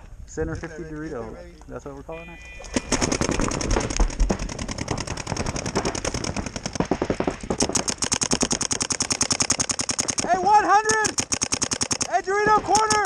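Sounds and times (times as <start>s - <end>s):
paintball marker firing rapidly: 2.7s - 13.0s.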